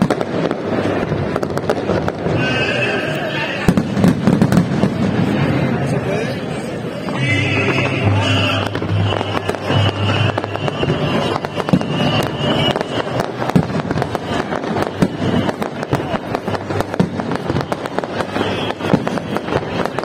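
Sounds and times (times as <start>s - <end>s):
fireworks cracking and banging: 0.0s - 20.0s.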